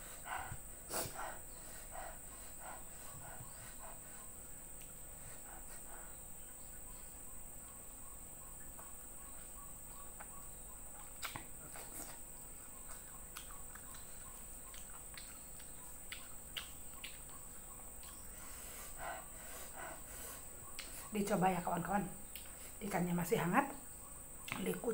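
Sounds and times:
high insect drone: 0.0 - 24.9
wet chewing: 8.6 - 21.4, 22.2 - 22.8
lip smacks: 10.1 - 18.4, 20.7 - 21.1, 22.2 - 22.7
small clicks from mouth and fingers: 11.0 - 11.5, 13.3 - 17.4, 22.3 - 22.5.

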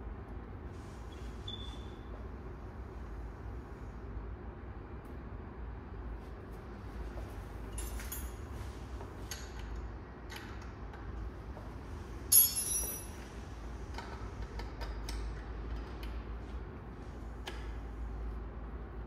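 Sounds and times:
ringing metallic clink: 12.3 - 13.2.

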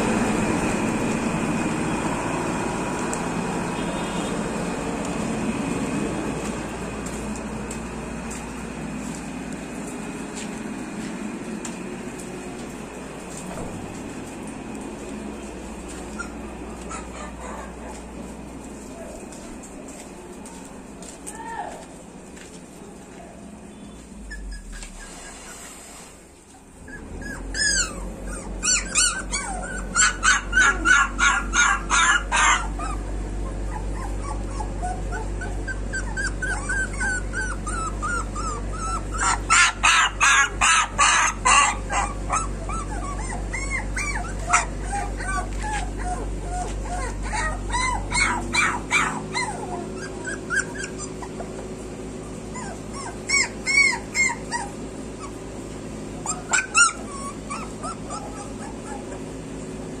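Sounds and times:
puppy whimpering and yelping: 16.1 - 17.9, 24.2 - 25.8, 26.6 - 55.5, 56.2 - 59.5.

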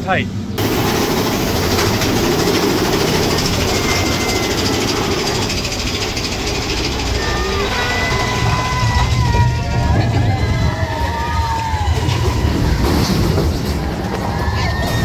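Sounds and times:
roller coaster rushing on track: 0.0 - 15.0
thin high squeals: 3.3 - 6.0.

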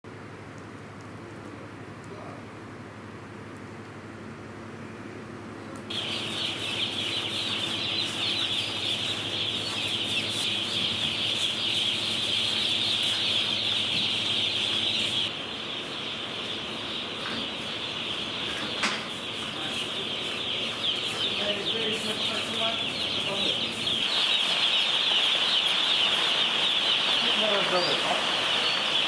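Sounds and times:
chicks peeping: 5.8 - 29.0.

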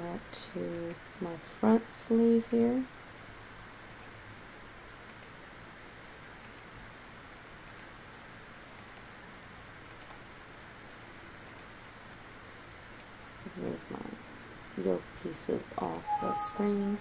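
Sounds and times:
computer mouse clicks: 3.9 - 4.2, 5.1 - 5.4, 6.4 - 6.7, 7.6 - 7.9, 8.8 - 9.1, 9.9 - 11.7.

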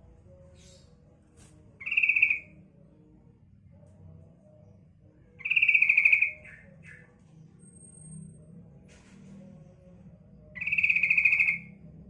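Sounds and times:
bird trilled call: 1.8 - 2.5, 5.4 - 7.0, 10.6 - 11.8.

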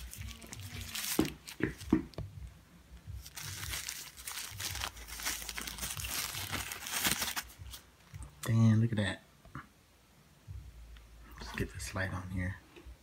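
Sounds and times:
paper crumpling and crinkling: 0.0 - 1.9, 3.2 - 7.8.

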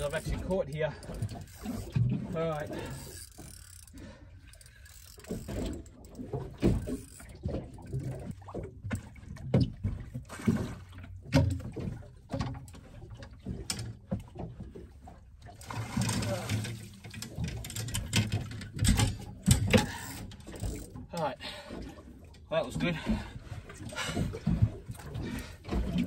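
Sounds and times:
fishing reel gears clicking: 2.7 - 4.0, 4.6 - 5.6.

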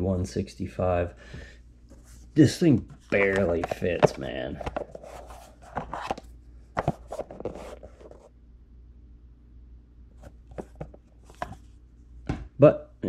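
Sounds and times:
plastic cover scrapes and knocks: 3.0 - 8.3, 10.2 - 11.7.

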